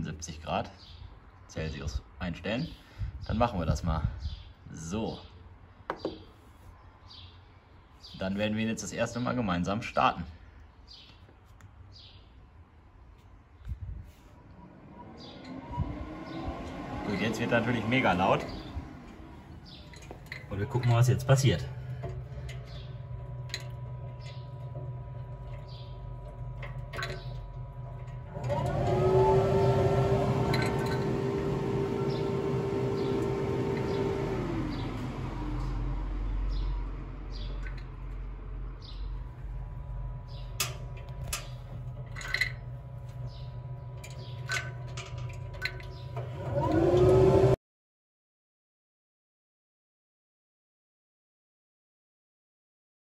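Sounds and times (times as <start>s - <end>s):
low hum: 13.8s - 47.4s
grill fan whine: 13.9s - 47.6s.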